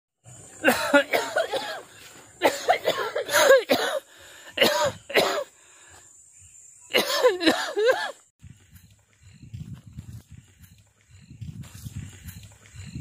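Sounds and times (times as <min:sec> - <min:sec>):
man coughing: 0:00.6 - 0:05.5, 0:06.9 - 0:08.2.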